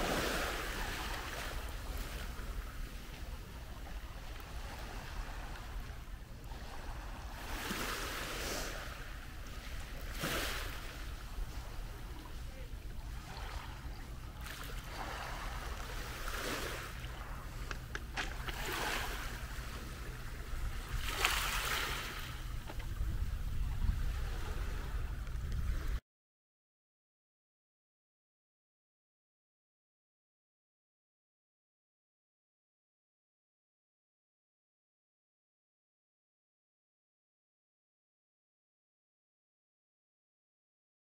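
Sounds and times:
low steady rumble: 0:00.0 - 0:26.0
waves washing over pebbles: 0:18.3 - 0:19.4, 0:20.8 - 0:22.4.

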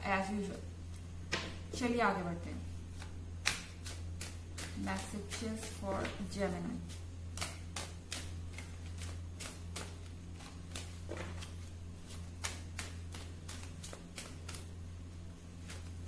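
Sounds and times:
steady low hum: 0:00.0 - 0:16.0
cards being shuffled: 0:02.9 - 0:14.8, 0:15.6 - 0:16.0.

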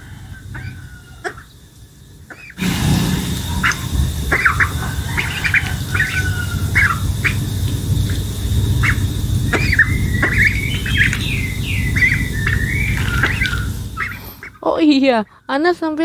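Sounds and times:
duckling peeping: 0:00.5 - 0:01.6, 0:02.3 - 0:15.4
low rumbling noise: 0:01.9 - 0:14.6.

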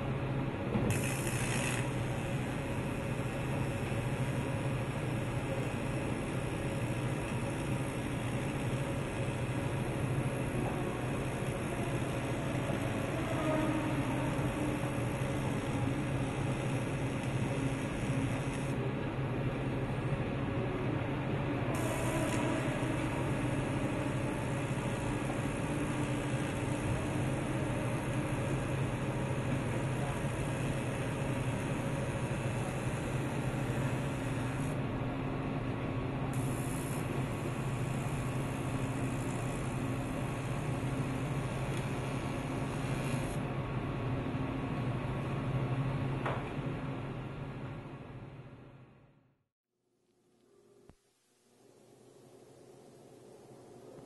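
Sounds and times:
welding arc humming and hissing: 0:00.0 - 0:34.9, 0:36.2 - 0:43.5.

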